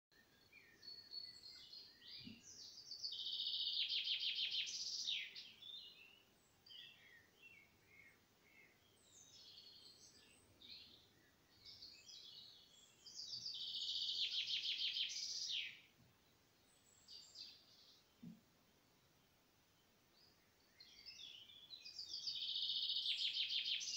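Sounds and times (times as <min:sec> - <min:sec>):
short bird chirps: 0:00.2 - 0:11.0, 0:11.6 - 0:15.9, 0:20.8 - 0:23.9
bird song with fast trill: 0:00.2 - 0:18.2, 0:18.9 - 0:23.9.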